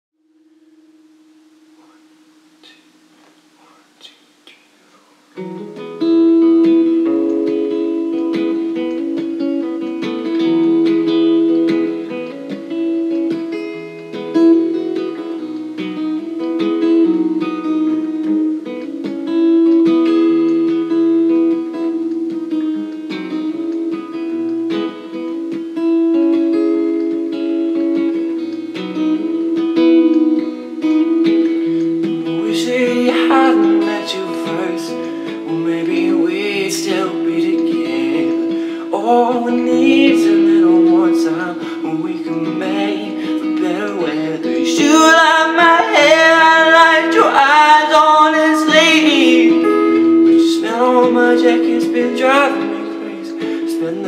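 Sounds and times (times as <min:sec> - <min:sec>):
acoustic guitar playing: 0:00.2 - 0:54.0
man singing: 0:32.2 - 0:54.0.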